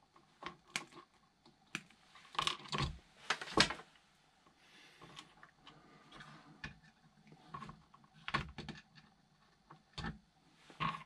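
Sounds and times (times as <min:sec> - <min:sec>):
plastic parts clicking and knocking: 0:00.1 - 0:03.8, 0:05.0 - 0:10.2.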